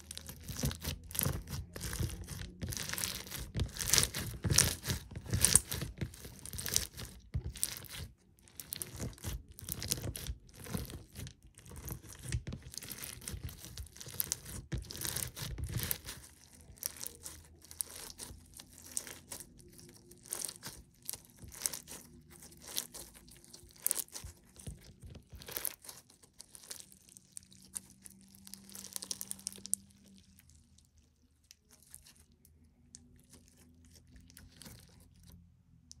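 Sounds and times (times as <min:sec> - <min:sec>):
slime beads crunching: 0:00.0 - 0:36.0.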